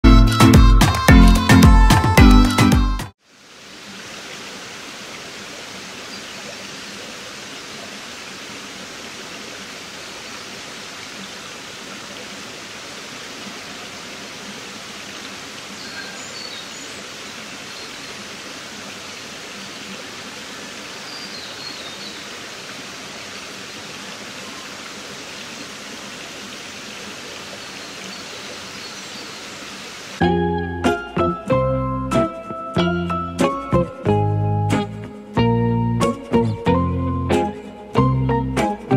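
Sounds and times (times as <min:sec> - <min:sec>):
stream water rushing over rocks: 0:03.2 - 0:30.2.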